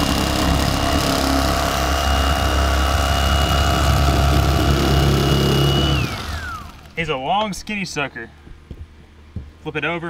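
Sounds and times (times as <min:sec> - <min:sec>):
electric fillet knife whining: 0:00.0 - 0:07.0.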